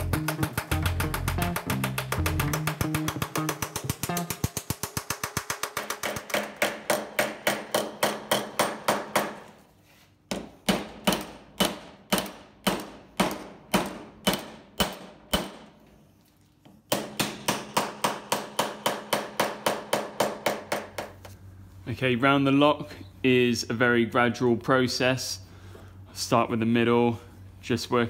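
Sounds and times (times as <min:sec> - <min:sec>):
hammer beating sheet metal: 0:00.0 - 0:09.5, 0:10.3 - 0:15.7, 0:16.9 - 0:21.0.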